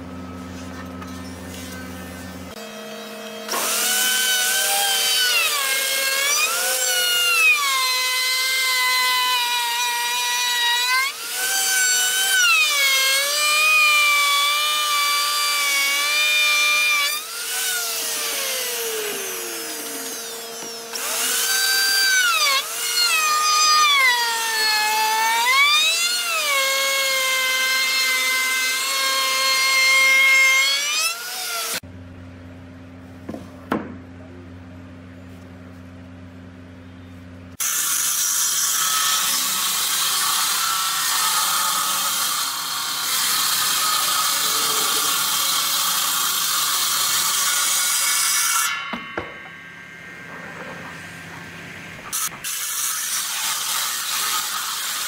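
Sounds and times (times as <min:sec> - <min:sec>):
router motor whining: 0:00.0 - 0:31.8, 0:38.6 - 0:49.5.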